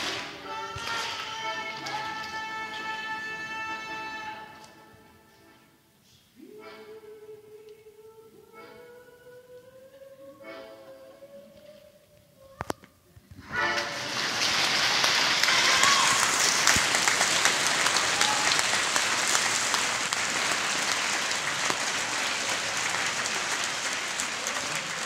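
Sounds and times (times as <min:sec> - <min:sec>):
audience applauding: 0:13.8 - 0:25.0.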